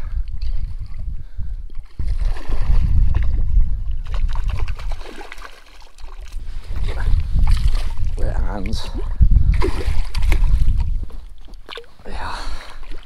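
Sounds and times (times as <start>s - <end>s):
wind rumble on microphone: 0.0s - 5.3s, 6.2s - 13.0s
fish splashing at water surface: 4.0s - 6.4s.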